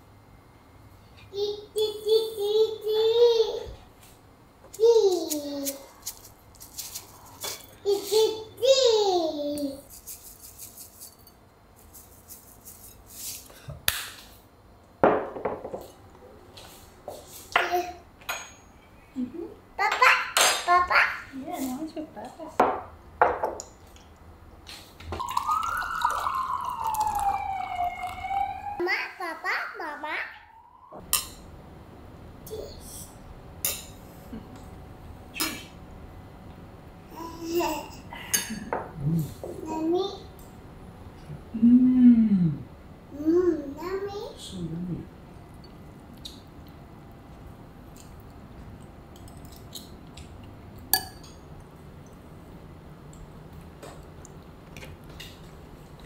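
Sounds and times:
low room hum: 0:00.0 - 0:56.0
seeds rattling in shaker: 0:05.6 - 0:07.5, 0:09.9 - 0:11.2.

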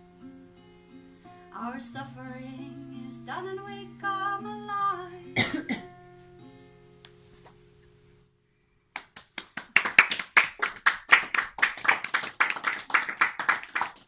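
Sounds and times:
acoustic guitar chord: 0:00.0 - 0:07.0
small audience clapping: 0:08.9 - 0:14.0.

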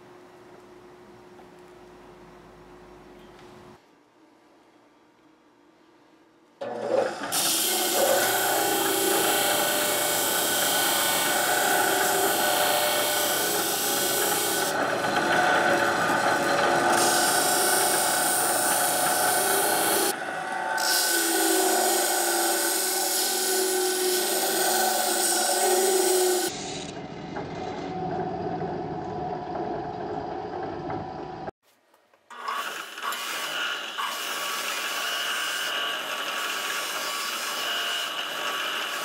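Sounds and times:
motor hum: 0:06.6 - 0:20.8
belt sander grinding metal: 0:06.6 - 0:26.6, 0:32.4 - 0:39.0.

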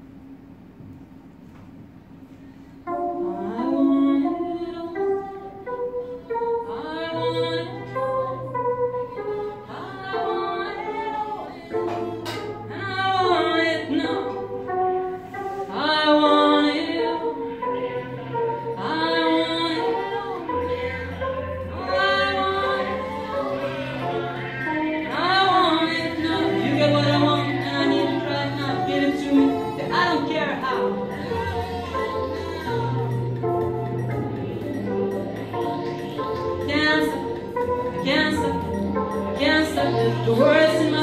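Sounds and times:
electronic keyboard bass notes: 0:02.9 - 0:41.0
woman singing into a microphone: 0:03.2 - 0:15.0, 0:15.6 - 0:35.0, 0:35.7 - 0:41.0.

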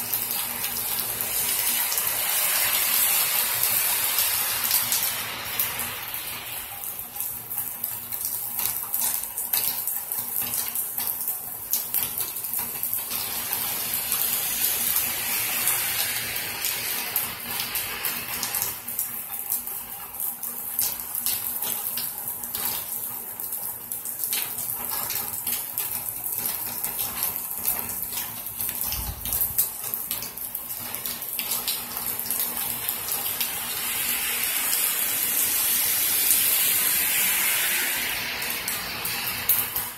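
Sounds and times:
car tyres hissing on wet road: 0:00.0 - 0:07.4, 0:13.0 - 0:19.0, 0:32.3 - 0:39.9
steady rain falling: 0:00.0 - 0:39.9.

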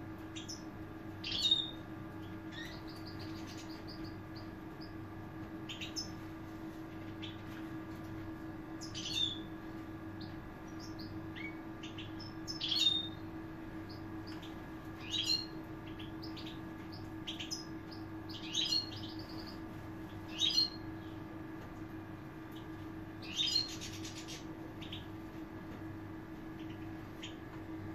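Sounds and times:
steady low hum: 0:00.0 - 0:27.9
goldfinches twittering: 0:00.4 - 0:05.0, 0:05.7 - 0:06.2, 0:08.8 - 0:09.5, 0:10.2 - 0:20.9, 0:22.5 - 0:25.1.

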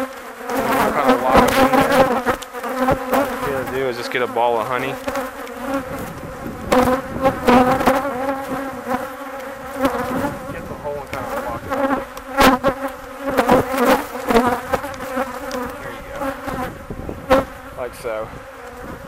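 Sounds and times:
honeybees buzzing: 0:00.0 - 0:19.0.

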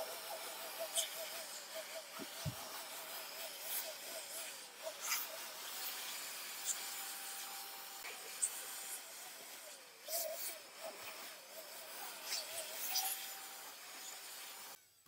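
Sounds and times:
air blower hissing: 0:00.0 - 0:06.7
blower whine: 0:00.0 - 0:14.8.

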